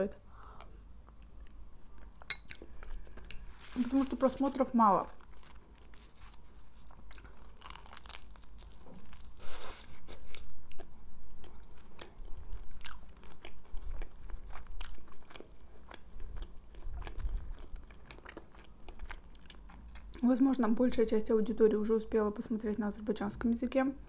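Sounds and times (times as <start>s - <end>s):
person chewing food: 0.6s - 3.8s, 5.1s - 20.2s.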